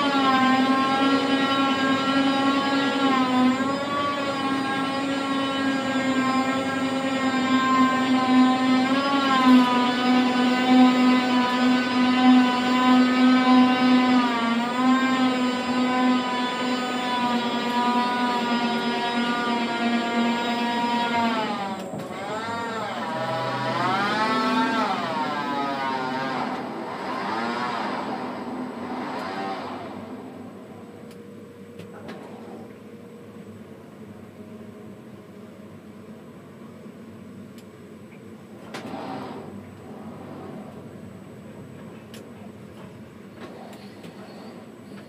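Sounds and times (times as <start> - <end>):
crane electric drive whining: 0.0 - 32.7.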